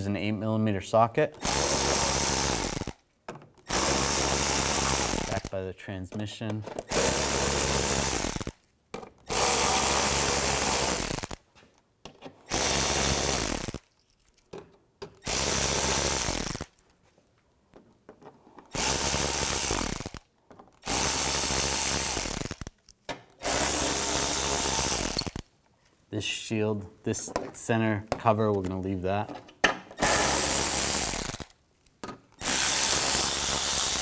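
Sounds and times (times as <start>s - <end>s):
power ratchet spinning bolts: 1.4s - 3.0s, 3.6s - 5.6s, 6.9s - 8.6s, 9.2s - 11.4s, 12.5s - 13.9s, 15.2s - 16.7s, 18.7s - 22.8s, 23.4s - 25.4s, 30.0s - 31.5s, 32.4s - 34.0s.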